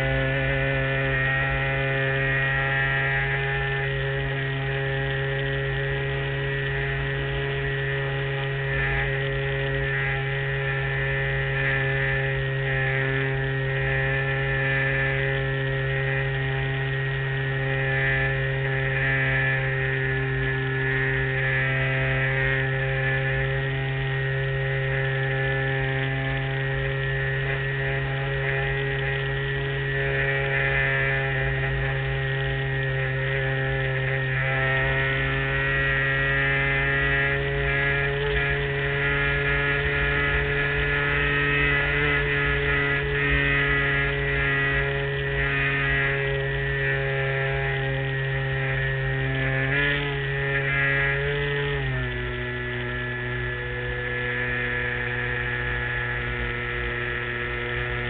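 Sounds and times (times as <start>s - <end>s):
model airplane motor and propeller: 0.0s - 58.0s.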